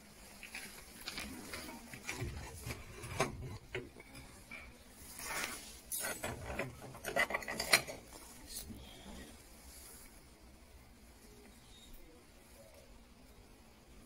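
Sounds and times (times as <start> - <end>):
ceramic plates clinking: 5.9 - 8.1.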